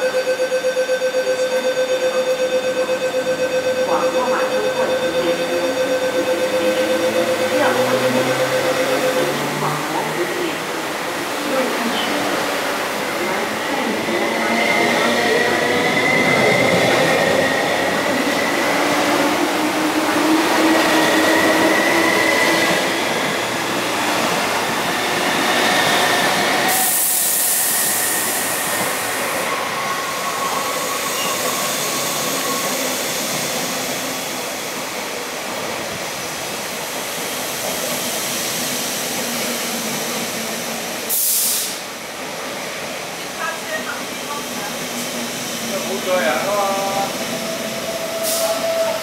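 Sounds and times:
electric train running past: 0.0s - 49.0s
train wheels rumbling on rails: 2.4s - 49.0s
loud hiss: 26.7s - 29.3s, 41.0s - 41.9s.

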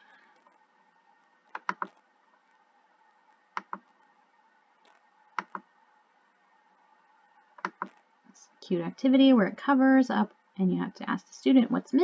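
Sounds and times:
computer mouse clicking: 1.4s - 2.0s, 3.5s - 4.0s, 4.8s - 5.7s, 7.6s - 8.1s.

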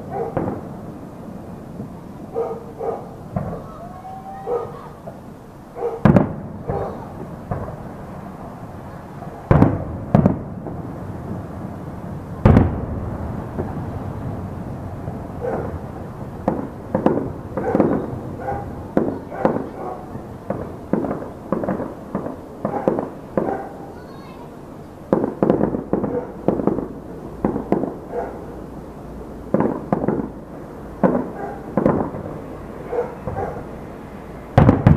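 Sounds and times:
lighter firework bangs: 0.0s - 0.9s, 1.8s - 3.8s, 4.7s - 11.8s, 12.4s - 14.6s, 15.2s - 24.4s, 25.0s - 28.5s, 29.5s - 30.4s, 31.0s - 33.8s, 34.5s - 34.9s
distant fireworks booming: 0.0s - 34.9s.

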